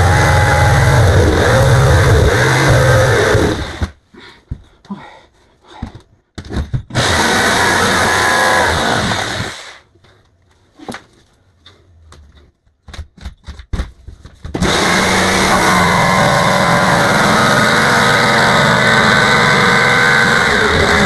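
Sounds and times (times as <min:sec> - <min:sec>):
power tool cutting wood: 0:00.0 - 0:03.9, 0:06.9 - 0:09.8, 0:14.6 - 0:21.0.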